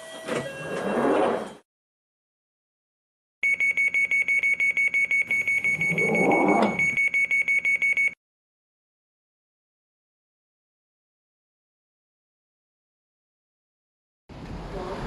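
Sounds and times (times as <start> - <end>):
rapid high-pitched warning beeps: 3.4 - 8.2.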